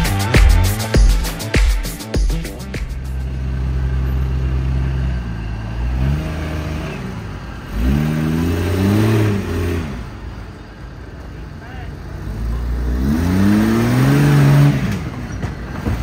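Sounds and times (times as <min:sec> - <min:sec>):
off-road engine revving: 0:02.5 - 0:10.4, 0:12.1 - 0:16.0.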